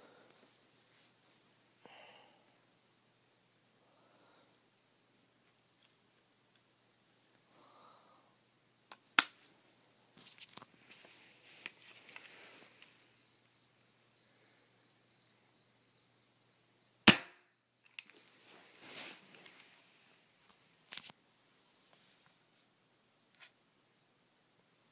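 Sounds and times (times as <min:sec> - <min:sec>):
faint high chirping: 0:00.0 - 0:24.9
sharp click: 0:09.2 - 0:09.4, 0:17.1 - 0:18.1
pellet gun crack: 0:17.1 - 0:17.4.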